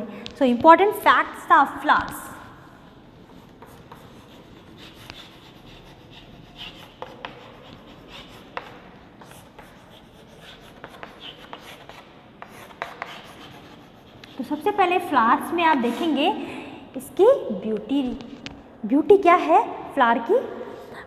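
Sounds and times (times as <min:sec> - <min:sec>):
chalk scratching on chalkboard: 0:03.2 - 0:15.1.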